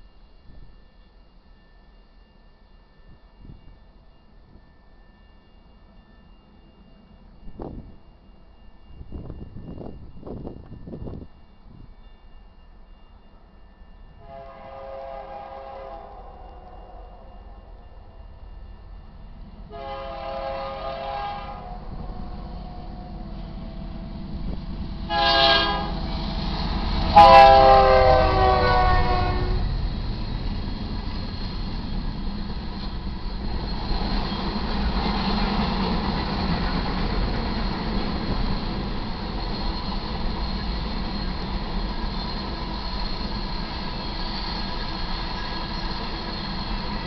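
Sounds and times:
train cars rumbling and clacking: 0:05.7 - 0:16.8, 0:17.4 - 0:47.0
locomotive horn blasts: 0:14.2 - 0:17.6, 0:19.7 - 0:23.6, 0:25.0 - 0:26.2, 0:27.0 - 0:29.7.

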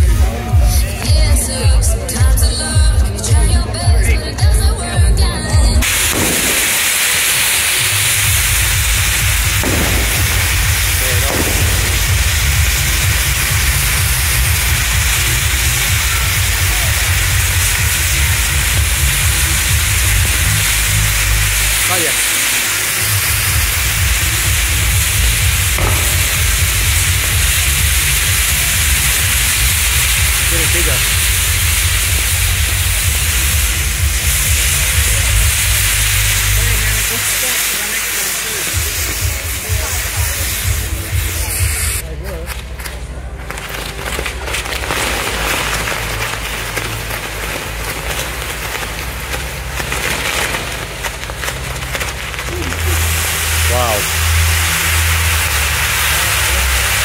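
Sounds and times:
firework fountain hissing: 0:00.0 - 0:57.0
firework crack: 0:05.8 - 0:57.0
low rumble: 0:23.1 - 0:35.6.

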